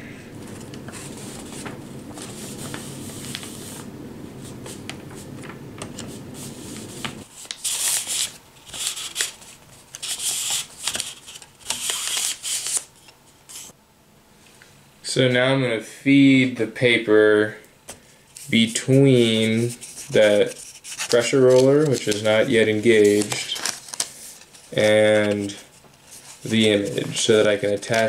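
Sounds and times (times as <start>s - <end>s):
steady low hum: 0.0s - 10.0s
wrapping paper rustling: 0.3s - 13.7s, 18.4s - 28.0s.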